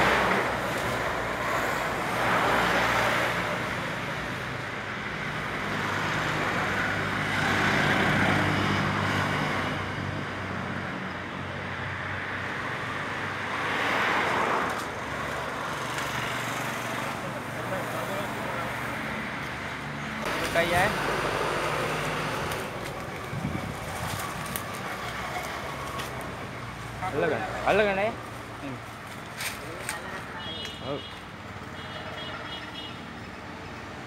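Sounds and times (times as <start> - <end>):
vehicles passing: 0.0 - 34.0
engine hum: 14.3 - 29.8.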